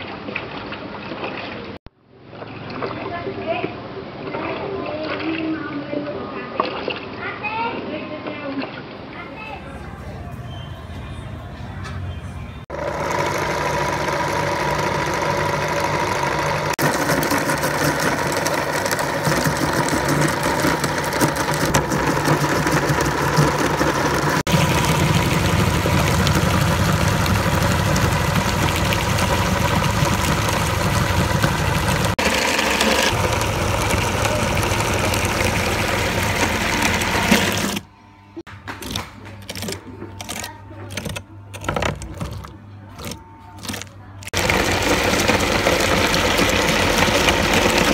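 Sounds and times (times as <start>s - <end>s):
broken-up grinding noises: 12.6s - 47.9s
meat grinder running: 12.7s - 47.9s.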